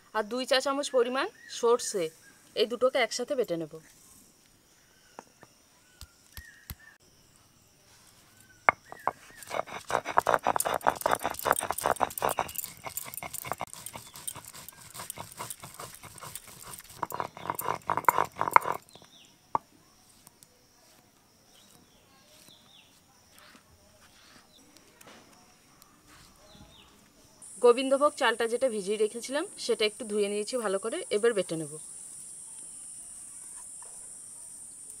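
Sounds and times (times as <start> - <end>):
stone roller grinding on stone slab: 8.7 - 19.1.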